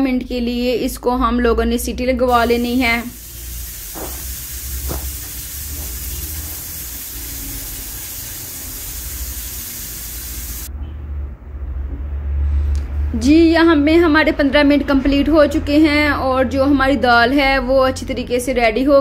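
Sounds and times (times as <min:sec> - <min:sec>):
pressure cooker hissing steam: 0:02.3 - 0:10.7.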